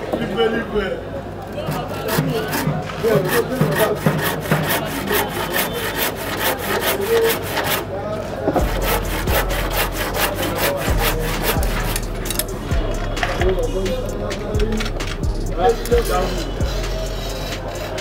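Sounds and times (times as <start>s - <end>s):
handsaw cutting wood: 1.6s - 7.9s, 8.6s - 12.6s, 15.6s - 18.0s.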